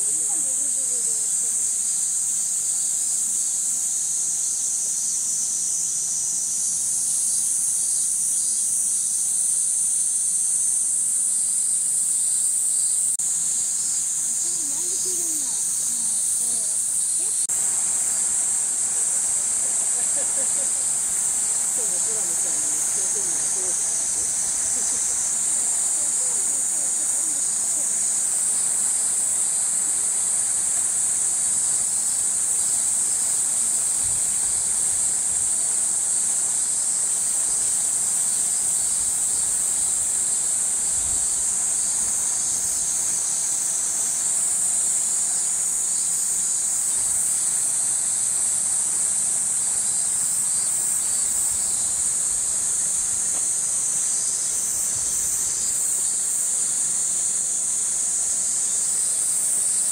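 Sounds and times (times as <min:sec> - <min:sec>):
cicadas buzzing: 0:00.0 - 0:59.9.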